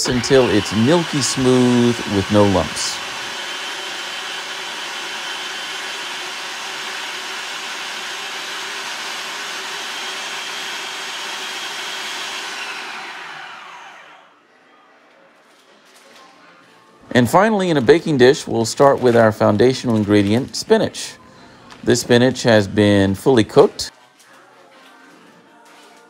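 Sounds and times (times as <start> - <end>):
food processor motor whirring: 0.0 - 14.3.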